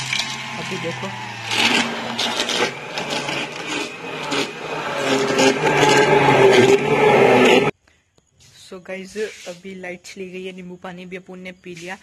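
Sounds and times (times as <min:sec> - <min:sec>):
hand blender motor humming: 0:00.0 - 0:07.7
liquid churning and splashing: 0:00.0 - 0:07.7.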